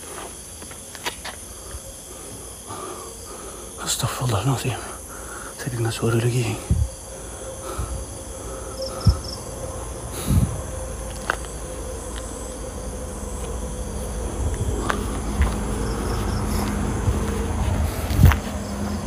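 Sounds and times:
crickets trilling: 0.0 - 19.0.

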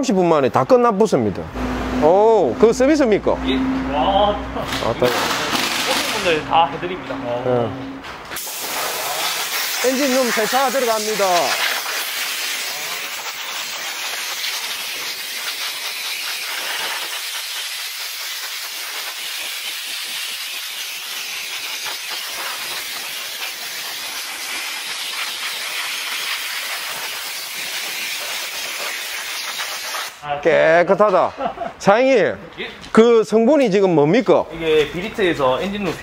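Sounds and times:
high-pressure spray gun hissing: 8.3 - 30.2.

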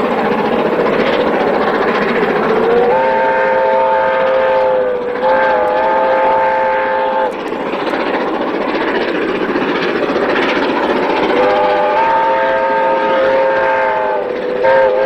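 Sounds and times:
steam locomotive running past: 0.0 - 15.0
steam whistle blasts: 2.5 - 7.4, 11.3 - 15.0.

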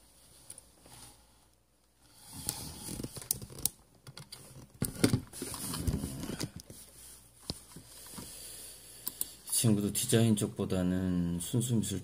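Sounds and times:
rustling: 4.3 - 8.4.

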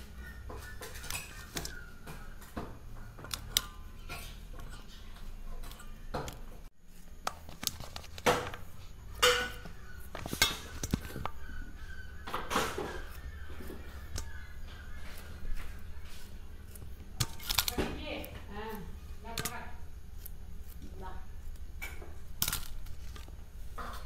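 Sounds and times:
knife and fruit clinking on steel plates: 0.2 - 6.5, 9.1 - 11.2, 12.3 - 19.8.

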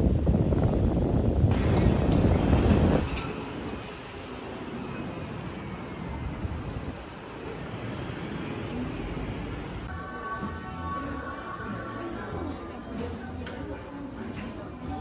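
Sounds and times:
wind rumble on microphone: 0.0 - 3.9
distant traffic hum: 1.5 - 9.9.

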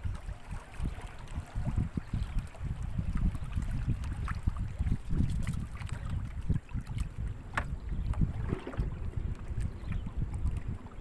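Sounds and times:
water trickling and lapping: 0.0 - 11.0
low rumble: 7.3 - 11.0.

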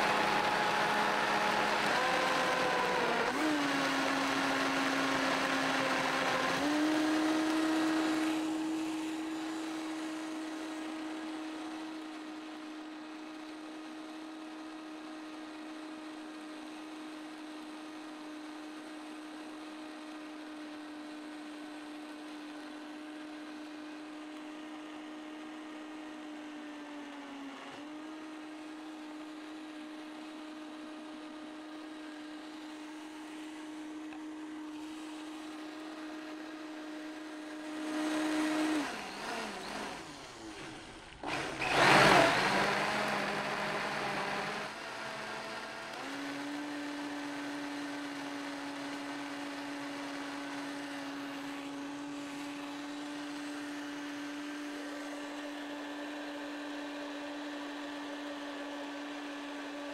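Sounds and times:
blender motor humming: 0.0 - 59.9.

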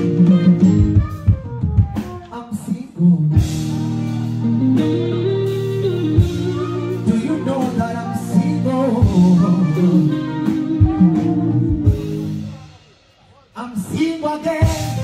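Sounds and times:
man singing into microphone: 1.5 - 4.4, 6.1 - 12.7, 13.4 - 15.0
backing music with held chords: 3.2 - 12.8.

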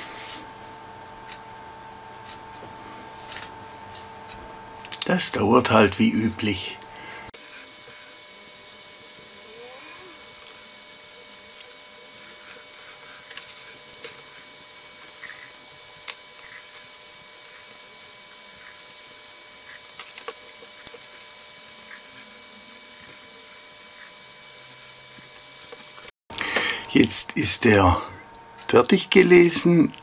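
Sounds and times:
high-pitched whining tones: 5.4 - 26.1.

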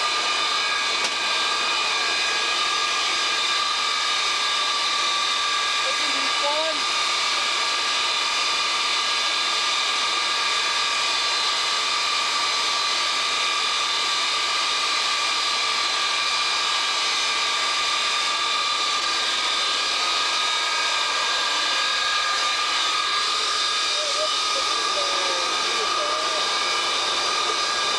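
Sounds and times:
high engine whine: 0.0 - 27.9
jet engines running: 0.0 - 27.9.

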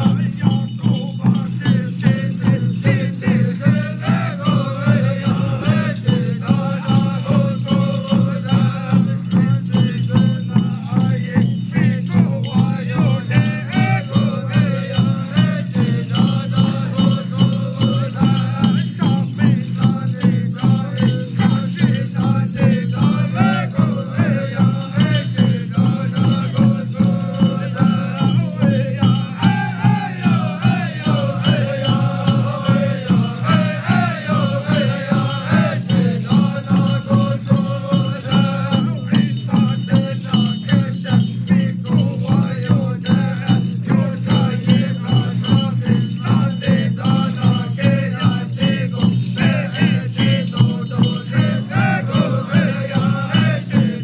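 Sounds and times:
men chanting: 0.0 - 54.0
steady drumbeat: 0.0 - 54.0
tin-cone jingles shaking: 0.0 - 54.0.

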